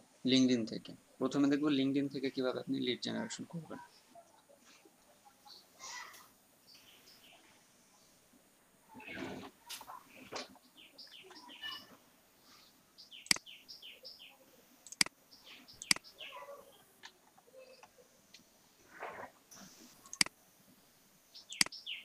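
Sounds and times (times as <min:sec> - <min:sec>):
birds chirping: 0:01.1 - 0:18.2, 0:21.2 - 0:22.0
sharp clicks: 0:13.2 - 0:13.5, 0:14.8 - 0:15.2, 0:15.8 - 0:16.1, 0:20.0 - 0:20.4, 0:21.5 - 0:21.8.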